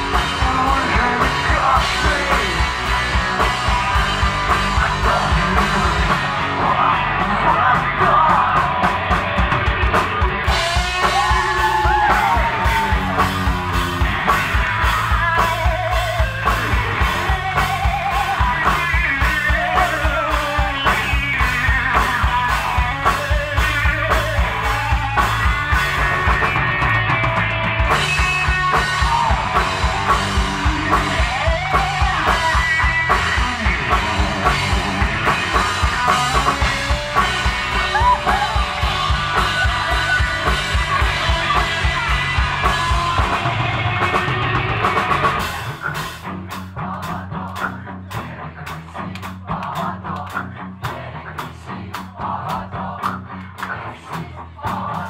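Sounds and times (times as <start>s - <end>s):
man singing: 0.0s - 9.0s, 15.0s - 25.4s
bass guitar: 0.0s - 55.0s
drum kit beat: 0.0s - 55.0s
electric guitars: 0.0s - 55.0s.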